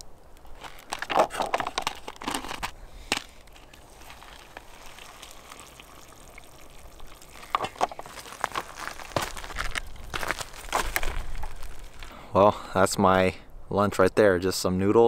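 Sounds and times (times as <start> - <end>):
hot water pouring: 3.6 - 9.2.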